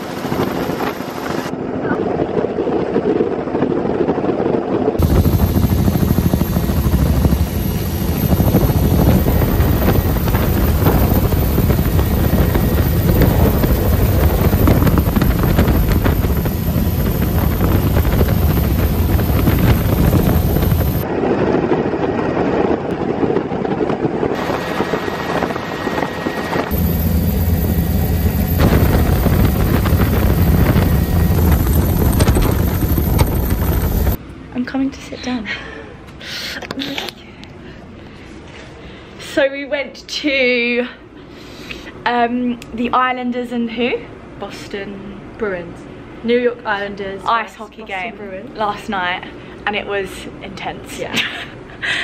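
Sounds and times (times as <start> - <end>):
helicopter rotor and engine: 0.0 - 34.2.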